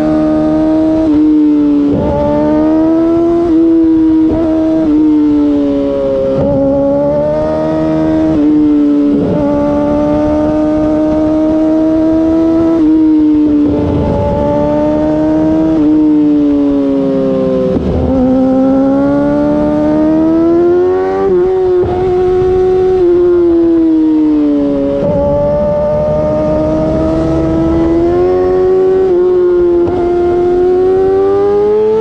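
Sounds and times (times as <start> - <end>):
motorcycle engine revving: 0.0 - 32.0.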